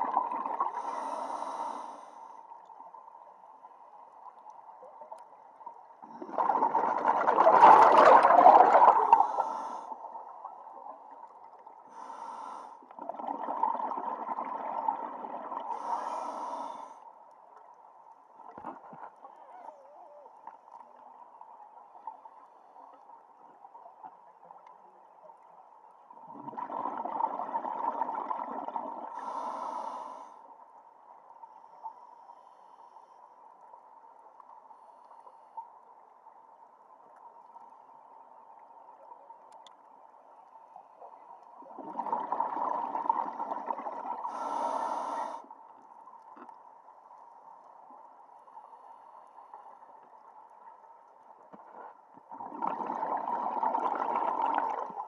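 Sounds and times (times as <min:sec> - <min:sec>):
bubbles underwater: 0:00.0 - 0:00.9, 0:06.0 - 0:09.4, 0:13.0 - 0:15.7, 0:26.2 - 0:29.2, 0:41.6 - 0:44.3, 0:52.3 - 0:55.0
diver breathing through regulator: 0:00.7 - 0:02.4, 0:09.0 - 0:10.0, 0:11.9 - 0:12.8, 0:15.7 - 0:17.0, 0:29.1 - 0:30.5, 0:44.3 - 0:45.5.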